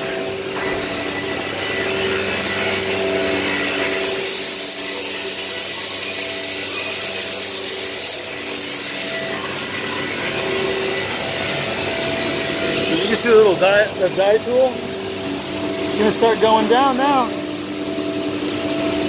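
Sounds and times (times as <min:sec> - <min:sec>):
machine whine: 0:00.0 - 0:19.0
router bit cutting board hiss: 0:03.6 - 0:09.2.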